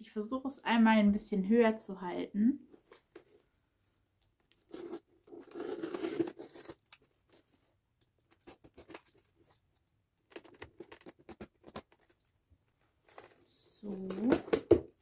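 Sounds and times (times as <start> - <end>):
tape and cardboard tearing: 4.5 - 7.1
box cutter slicing packing tape: 4.8 - 6.8.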